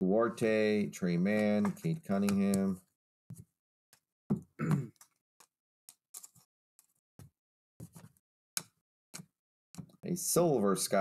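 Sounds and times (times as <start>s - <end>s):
cards clicking and snapping: 5.0s - 6.4s.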